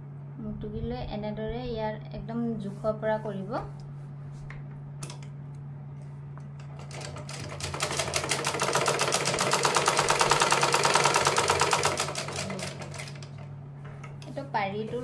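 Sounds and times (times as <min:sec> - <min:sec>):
sewing machine stitching: 0:06.8 - 0:13.4.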